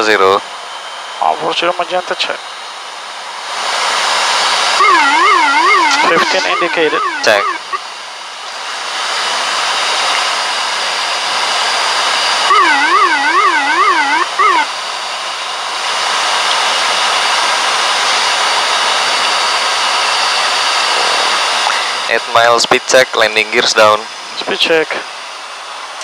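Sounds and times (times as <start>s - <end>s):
turboprop cockpit drone: 0.0s - 26.0s
warbling tone: 4.8s - 7.8s, 12.5s - 14.7s.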